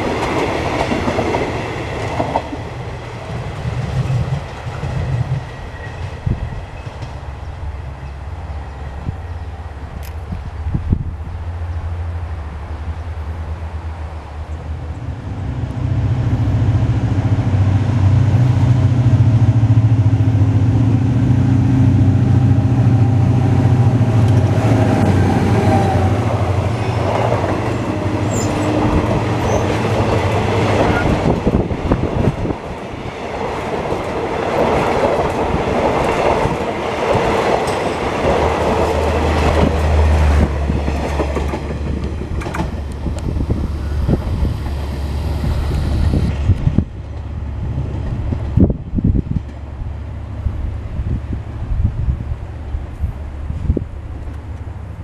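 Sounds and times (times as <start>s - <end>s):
diesel locomotive engine passing: 0.0s - 55.0s
train wheels clattering over rail joints: 27.0s - 45.0s.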